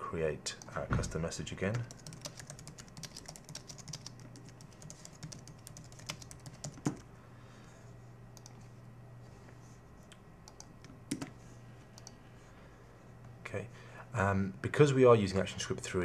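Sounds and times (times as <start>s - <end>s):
computer keyboard typing: 1.6s - 7.0s, 10.4s - 11.3s, 12.0s - 12.2s.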